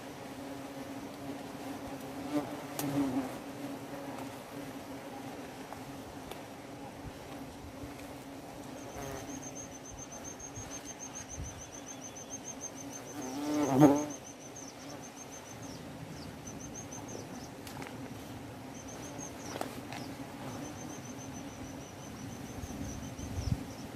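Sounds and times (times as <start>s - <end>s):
wasps buzzing: 0.4s - 6.0s, 7.4s - 23.9s
high pulsing insect trill: 8.8s - 17.6s, 18.7s - 23.9s.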